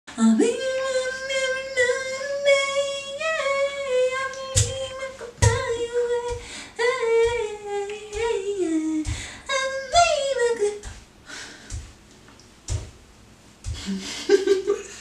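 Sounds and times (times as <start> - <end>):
woman singing a cappella: 0.1 - 11.0
short thumps: 4.6 - 6.5, 11.6 - 14.4.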